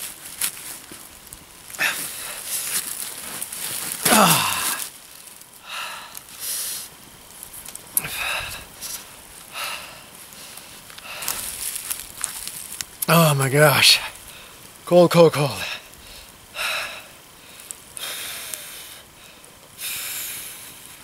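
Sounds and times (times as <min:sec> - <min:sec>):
man breathing heavily and sighing: 0:01.8 - 0:02.8, 0:04.0 - 0:04.9, 0:05.6 - 0:06.8, 0:08.0 - 0:11.5, 0:15.5 - 0:20.8
man groaning: 0:04.0 - 0:04.9, 0:13.1 - 0:14.1.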